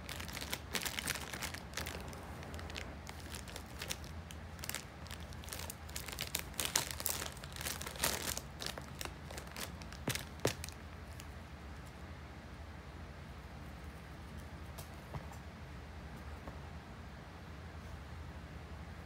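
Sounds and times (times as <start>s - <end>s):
plastic bag crinkling: 0.0s - 11.3s.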